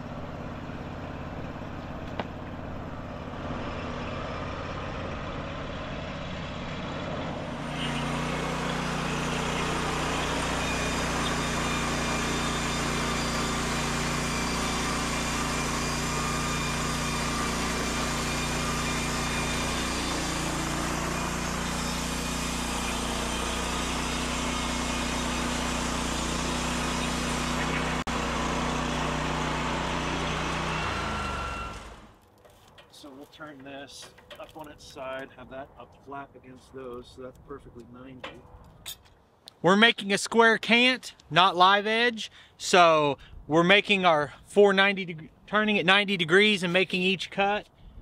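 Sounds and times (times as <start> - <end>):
sawmill engine running: 0.0 - 37.0
band blade cutting log: 7.2 - 32.7.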